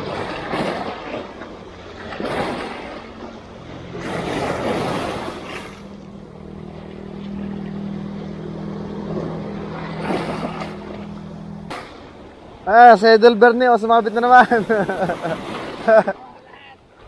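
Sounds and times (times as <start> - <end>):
small waves washing against rocks: 0.0 - 6.1
motorboat engine hum: 0.0 - 17.0.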